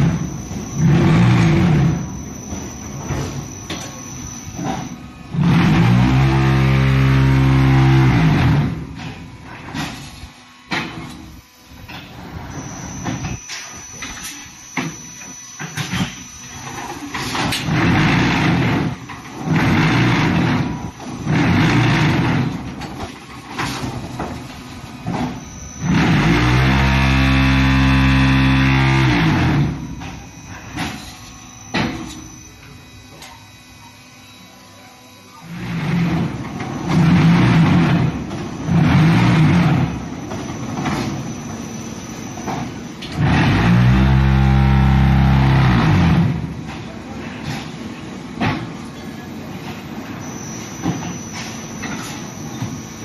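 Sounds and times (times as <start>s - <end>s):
mechanical noise and knocks: 0.0s - 33.4s
vibration motors humming: 0.0s - 53.0s.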